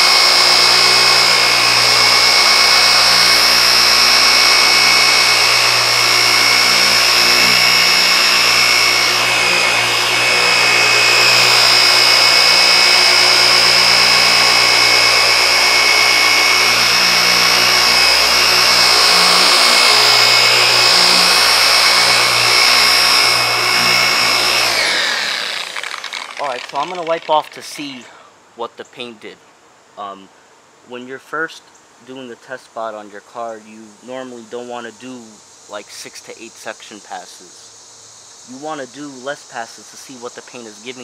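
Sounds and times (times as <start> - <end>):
orbital polisher humming: 0.0 - 27.6.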